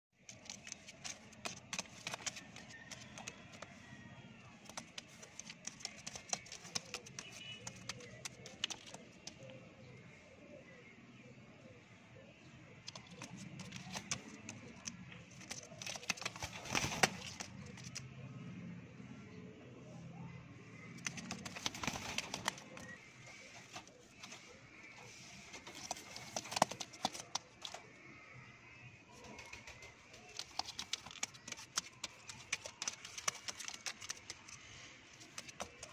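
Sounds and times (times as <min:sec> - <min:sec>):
pigeons cooing softly: 0:20.1 - 0:35.9.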